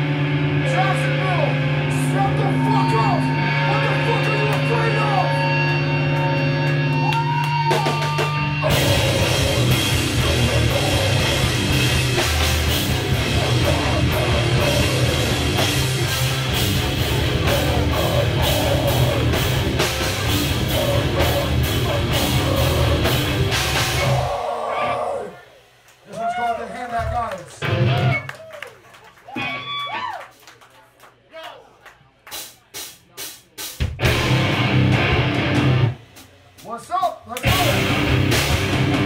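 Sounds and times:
heavy metal band playing live: 0.0s - 25.4s, 27.6s - 28.2s, 33.8s - 36.1s, 37.4s - 39.0s
distorted electric guitars: 0.0s - 25.8s, 27.6s - 28.3s, 33.8s - 36.3s, 37.4s - 39.0s
fast dense drums: 7.7s - 24.4s, 33.2s - 39.0s.

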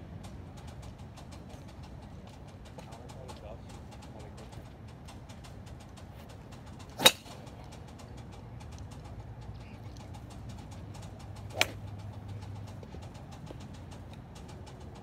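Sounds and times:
golf club striking ball: 6.7s - 7.6s, 10.6s - 12.8s.

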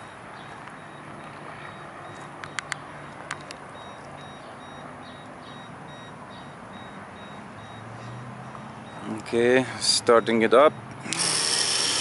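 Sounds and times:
faint high-pitched beeps: 0.0s - 10.8s
sharp clicks: 11.0s - 12.0s.

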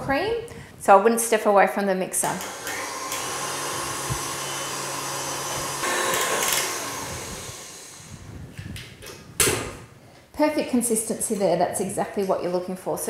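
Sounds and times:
stand mixer motor hum: 2.5s - 8.3s.

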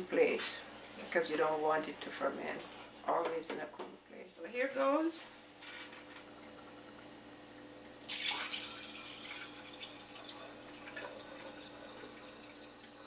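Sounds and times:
liquid pouring into a pitcher: 6.2s - 13.0s.

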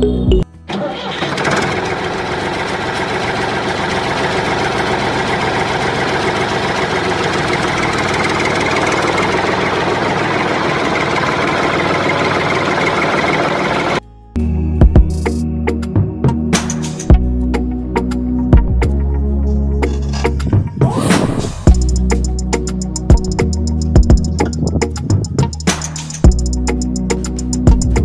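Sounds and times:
engine running with rattle: 0.7s - 14.0s, 21.7s - 28.0s.

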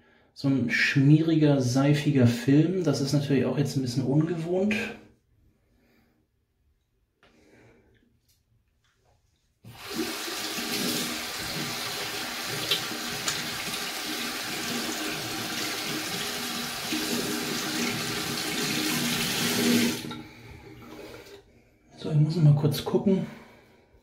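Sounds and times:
tap water splashing into sink: 9.7s - 20.2s.

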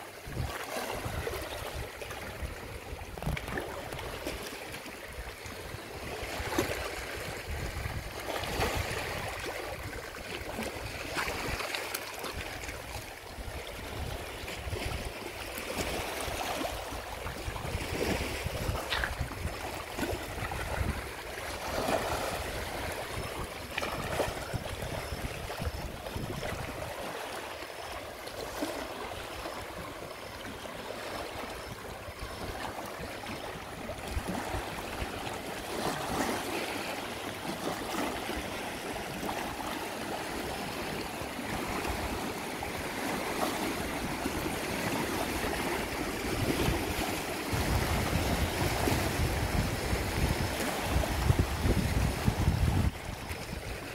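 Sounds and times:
sea waves lapping against rocks: 0.0s - 53.9s
wind buffeting microphone: 2.5s - 4.2s, 6.0s - 10.0s, 16.6s - 27.0s, 46.2s - 53.9s.

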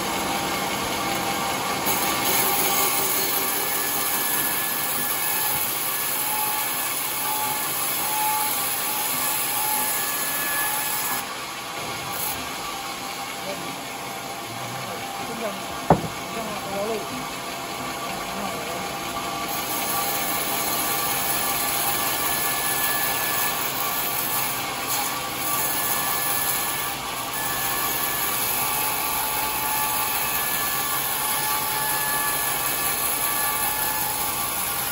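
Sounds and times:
band sawmill running: 0.0s - 34.9s.

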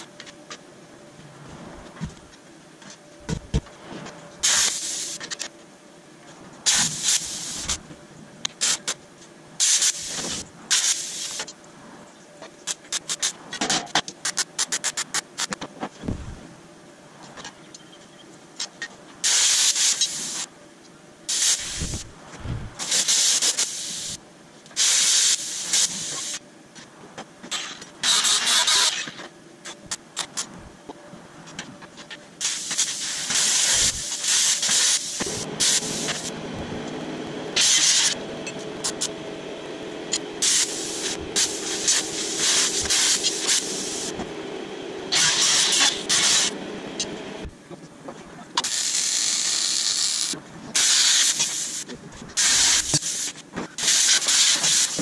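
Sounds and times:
plasma cutter hissing: 4.4s - 5.3s, 6.7s - 7.8s, 9.6s - 11.5s, 19.2s - 20.5s, 21.3s - 24.2s, 24.8s - 26.4s, 28.0s - 29.1s, 32.4s - 47.3s, 48.6s - 51.8s, 52.4s - 55.0s
steady low hum: 15.9s - 19.2s, 20.6s - 23.0s, 29.4s - 32.4s, 33.0s - 48.6s.

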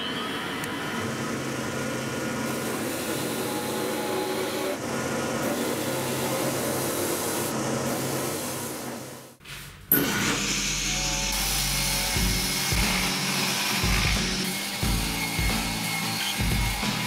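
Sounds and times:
dust extractor pulling air: 0.0s - 17.0s
drill press spinning: 9.9s - 17.0s
wooden board being sanded: 11.8s - 17.0s.

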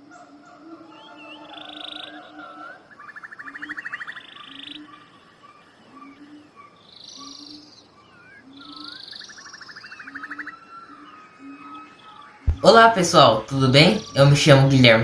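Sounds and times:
low repeating animal call: 0.0s - 14.5s
animal chirps and whistles: 8.3s - 12.6s.

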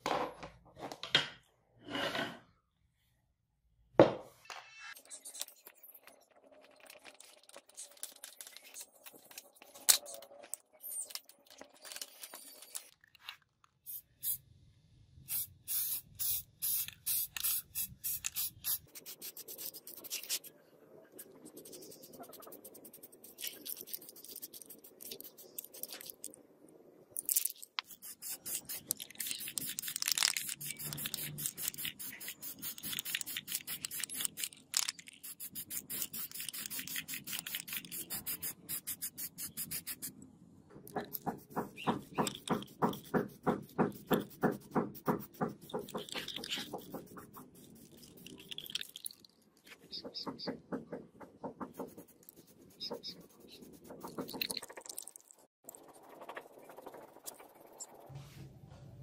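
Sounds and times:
spray paint hissing: 13.9s - 14.4s, 15.2s - 20.5s, 27.8s - 40.1s, 41.2s - 48.8s
spray can rattling: 15.3s - 20.4s, 21.5s - 26.3s, 27.2s - 40.1s, 40.9s - 49.1s.

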